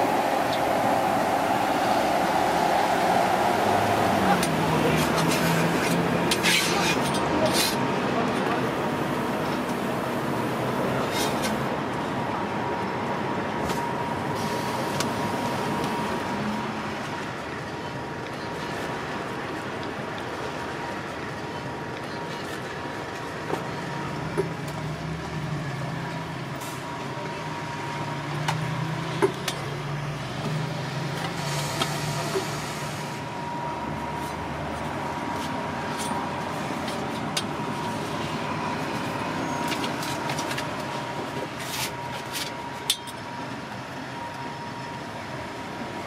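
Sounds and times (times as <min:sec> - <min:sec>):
faint high whine: 0:00.0 - 0:05.3
steady background hum: 0:00.0 - 0:05.9
deeper drone: 0:00.0 - 0:06.4.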